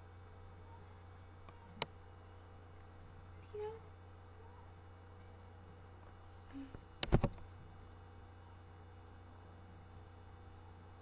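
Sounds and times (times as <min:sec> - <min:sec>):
steady low hum: 0:00.0 - 0:11.0
sharp clicks: 0:07.0 - 0:07.5.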